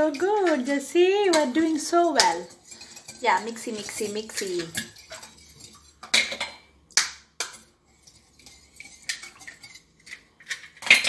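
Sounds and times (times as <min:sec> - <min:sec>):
whisk clinking on glass bowl: 0:00.0 - 0:06.1, 0:07.4 - 0:10.2.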